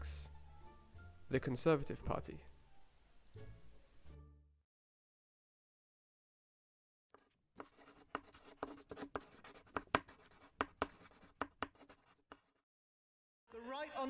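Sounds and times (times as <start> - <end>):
pen writing on paper: 7.2 - 12.6.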